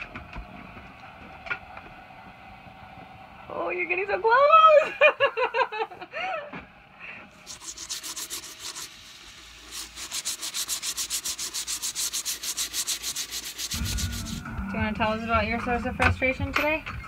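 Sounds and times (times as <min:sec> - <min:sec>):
hand sanding wood: 0:07.3 - 0:15.2.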